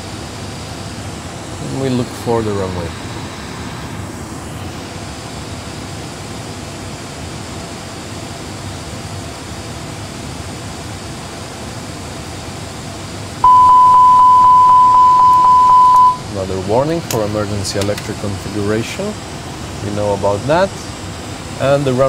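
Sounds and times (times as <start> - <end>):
loud warning tone: 13.4 - 16.3.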